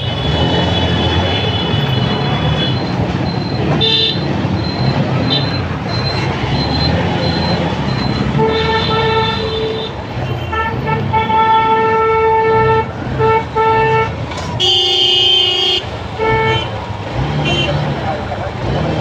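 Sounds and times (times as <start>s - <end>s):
idling engines rumbling: 0.0s - 19.0s
car horn blasts: 8.2s - 16.8s, 17.4s - 17.8s.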